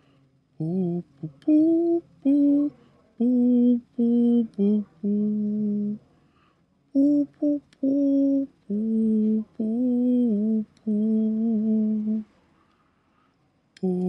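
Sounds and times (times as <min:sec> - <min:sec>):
person humming a tune: 0:00.6 - 0:06.0, 0:07.0 - 0:12.3, 0:13.8 - 0:14.0.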